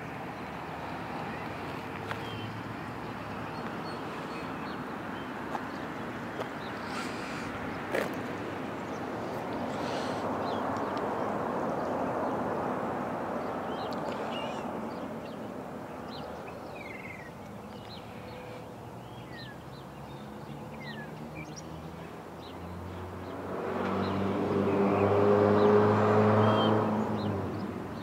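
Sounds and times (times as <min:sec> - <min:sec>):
small birds chirping: 0:00.0 - 0:12.4, 0:13.4 - 0:28.0
tyre noise on wet road: 0:00.2 - 0:04.4
vehicle engine approaching: 0:22.6 - 0:27.7.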